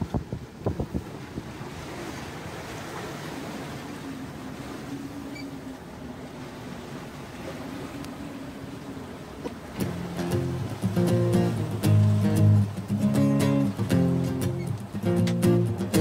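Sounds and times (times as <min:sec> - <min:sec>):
water rushing: 0:00.0 - 0:16.0.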